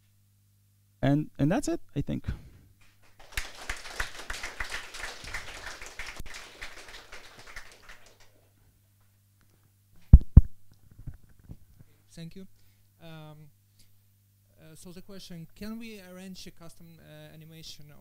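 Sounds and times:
audience applauding: 2.8s - 8.4s.

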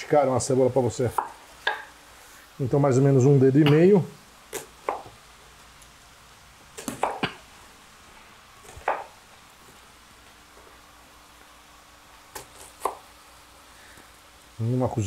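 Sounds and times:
knife chopping on wooden board: 4.5s - 5.2s, 6.8s - 7.4s, 8.7s - 9.1s, 12.3s - 13.0s.

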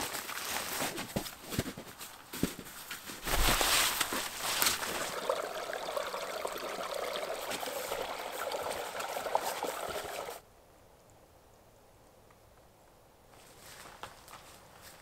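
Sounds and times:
branches brushing and crackling: 0.0s - 5.2s
stream trickling: 4.3s - 10.4s.

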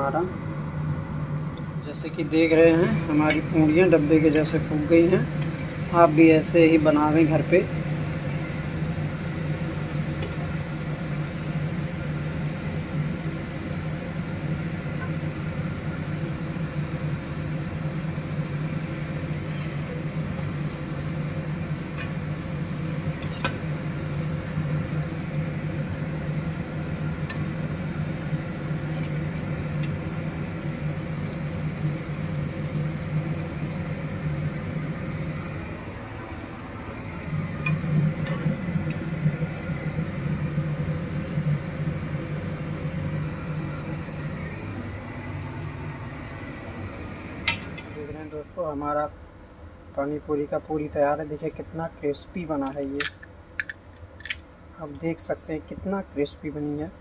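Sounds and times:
dough frying in hot oil: 4.4s - 35.6s.

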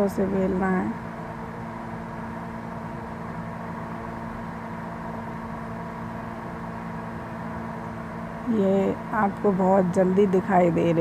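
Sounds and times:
machine hum: 0.0s - 11.0s.

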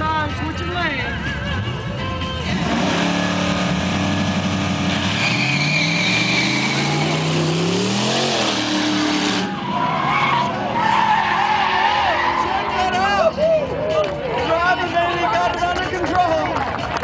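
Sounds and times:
car engine accelerating: 1.7s - 13.3s.

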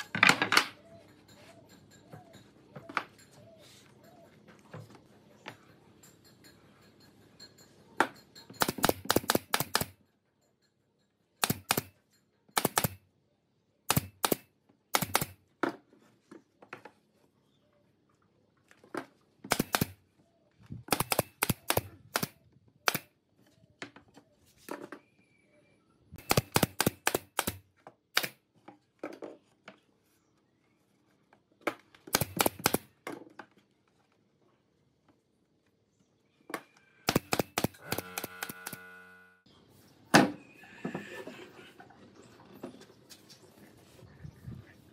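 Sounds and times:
pneumatic nail gun firing: 8.6s - 9.9s, 11.4s - 11.9s, 12.6s - 13.0s, 13.9s - 15.4s, 19.5s - 20.0s, 20.9s - 23.1s, 26.2s - 28.4s, 32.1s - 32.9s, 37.1s - 38.9s.

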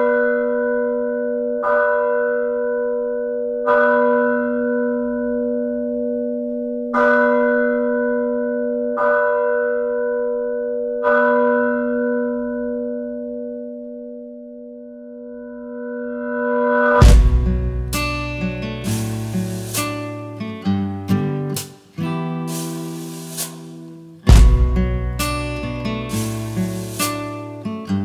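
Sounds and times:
church bell tolling: 0.0s - 20.7s.

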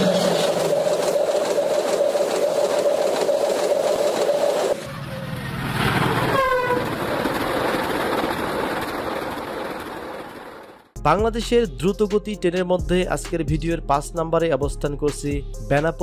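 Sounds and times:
steady whine: 0.0s - 5.9s
train rushing past on track: 0.0s - 11.0s
train horn blast: 6.3s - 6.9s.

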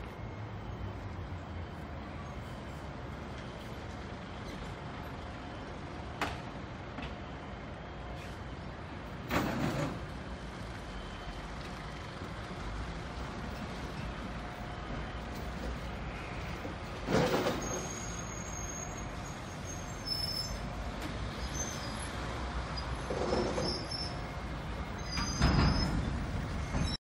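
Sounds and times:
tram rumbling on rail track: 0.0s - 27.0s
faint high squeaks: 17.1s - 20.7s, 22.8s - 27.0s.

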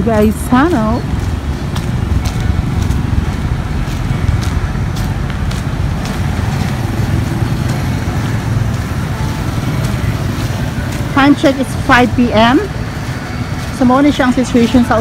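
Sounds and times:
low street rumble: 0.0s - 15.0s.

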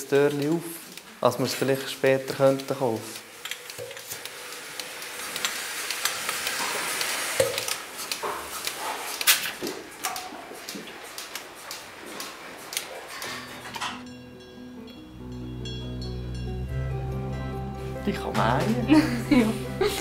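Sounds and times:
milking machine hissing: 0.6s - 13.3s
soft music: 13.3s - 20.0s.

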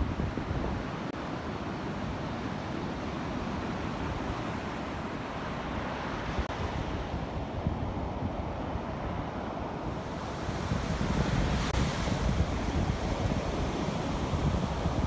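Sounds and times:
wind buffeting microphone: 0.0s - 1.8s, 2.6s - 15.0s
small waves washing on sand: 8.6s - 15.0s.

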